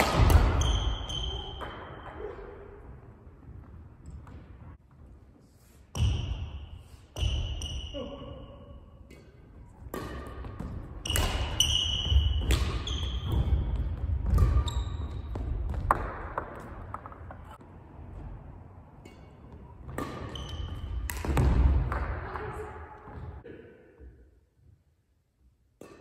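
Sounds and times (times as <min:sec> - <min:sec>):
racket striking shuttlecock: 0:00.0 - 0:02.3, 0:09.0 - 0:17.4, 0:19.0 - 0:22.6, 0:25.8 - 0:26.0
shoe squeaks: 0:00.6 - 0:02.3, 0:11.0 - 0:15.5, 0:20.2 - 0:21.0.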